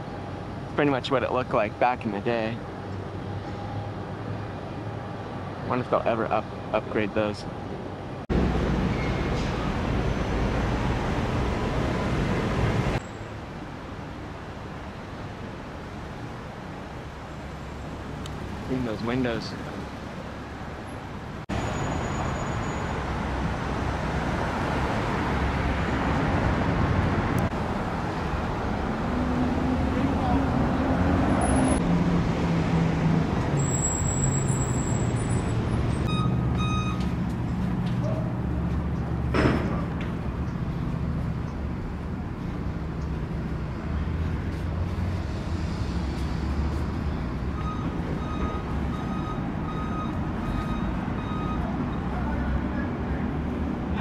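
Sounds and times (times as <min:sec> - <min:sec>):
road traffic with passing cars: 0:00.0 - 0:54.0
short electronic beeps: 0:36.1 - 0:37.0, 0:47.6 - 0:52.1.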